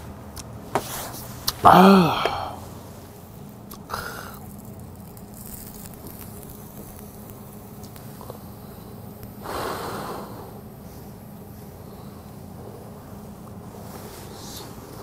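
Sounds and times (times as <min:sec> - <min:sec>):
charcoal fire crackling: 0:00.0 - 0:15.0
man blowing on food: 0:03.7 - 0:11.2.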